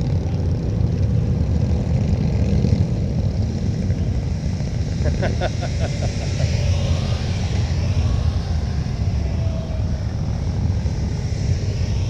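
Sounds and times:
motorcycles and traffic rumbling: 0.0s - 12.0s.

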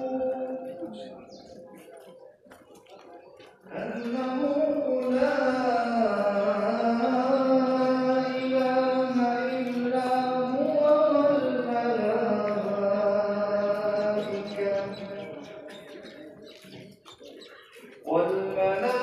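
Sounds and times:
person chanting in long notes: 0.0s - 1.2s, 3.7s - 15.7s.

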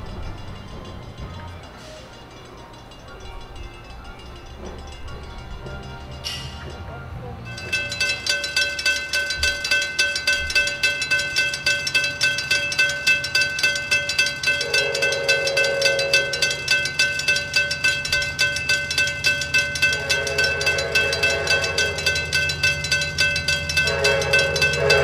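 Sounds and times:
crossing warning bells ringing: 0.0s - 25.0s
locomotive horn blasts: 14.4s - 16.9s, 19.4s - 25.0s.

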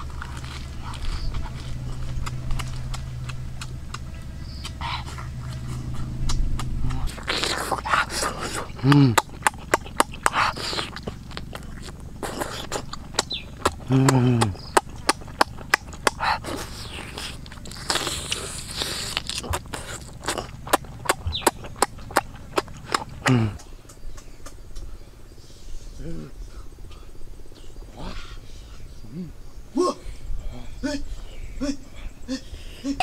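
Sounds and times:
wet chewing and lip-smacking: 0.0s - 24.9s
low falling hums: 0.0s - 33.0s
sucking noises: 4.6s - 14.7s, 16.0s - 22.2s.

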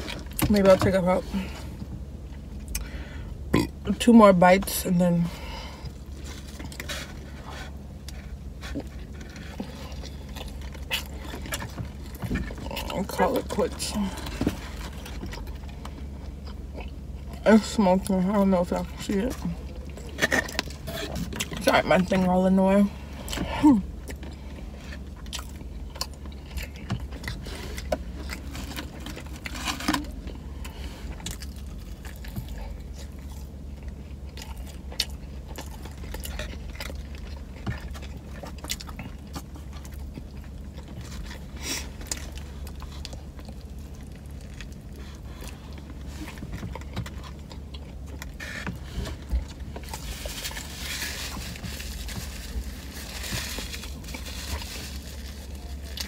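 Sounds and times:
steady low hum: 0.0s - 56.0s
person chewing and biting: 5.8s - 17.4s, 23.3s - 56.0s
paper wrapper rustling: 49.8s - 56.0s.

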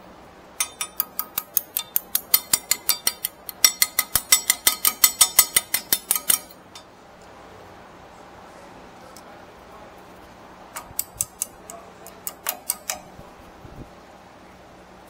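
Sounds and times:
hand ratchet clicking: 0.6s - 6.8s, 10.8s - 13.1s.

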